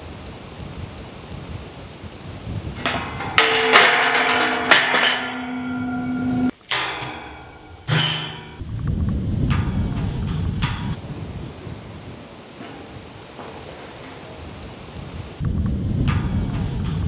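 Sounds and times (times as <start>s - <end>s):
hard strikes on metal: 2.8s - 8.7s, 9.4s - 11.0s.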